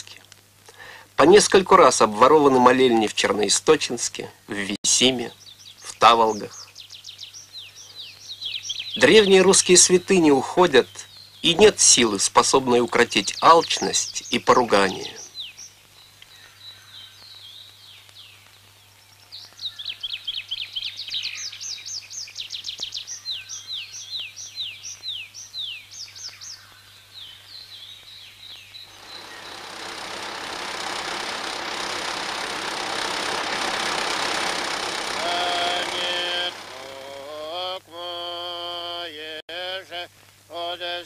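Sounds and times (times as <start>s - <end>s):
songbird chirping: 5.0s - 31.8s
logging machinery noise: 28.9s - 37.8s.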